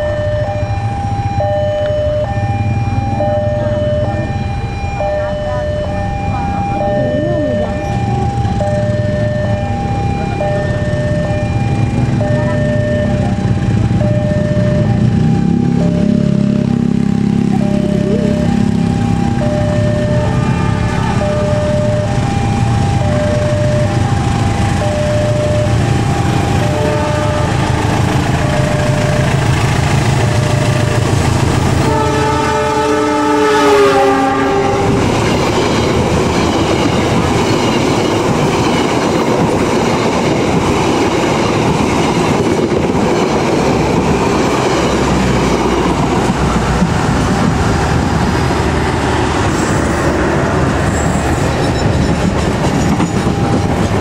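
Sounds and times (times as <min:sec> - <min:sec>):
diesel locomotive engine: 0:00.0 - 0:54.0
two-tone crossing alarm: 0:00.0 - 0:54.0
train wheels rumbling and clattering: 0:18.6 - 0:32.9, 0:33.7 - 0:54.0
train chord horn: 0:20.2 - 0:21.5, 0:25.7 - 0:35.2.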